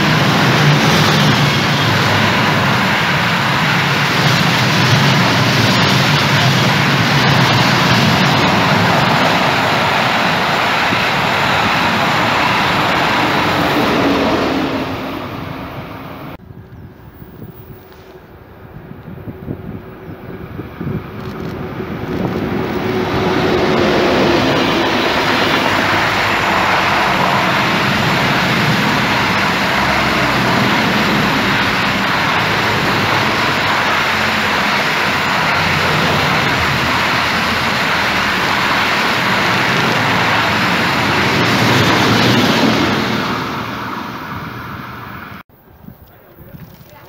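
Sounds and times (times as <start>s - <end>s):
freight train wheels rushing: 0.0s - 16.4s, 17.0s - 45.4s.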